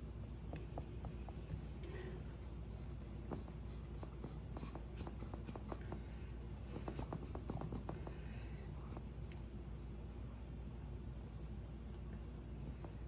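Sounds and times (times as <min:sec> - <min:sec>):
paintbrush tapping on canvas: 0:00.4 - 0:01.6.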